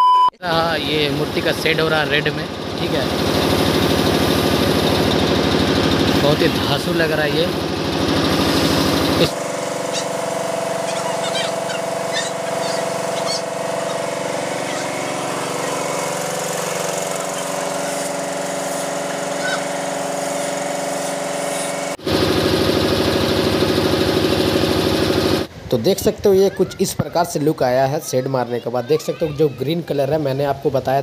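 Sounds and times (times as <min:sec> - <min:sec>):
air compressor humming: 0:00.5 - 0:25.6
paint spray hissing: 0:08.3 - 0:22.0.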